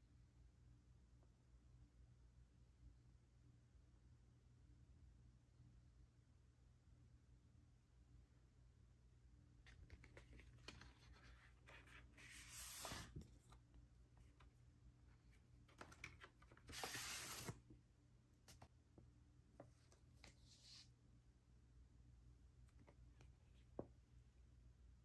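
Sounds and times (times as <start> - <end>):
paper sleeve sliding on card: 10.8 - 13.4, 16.5 - 17.6.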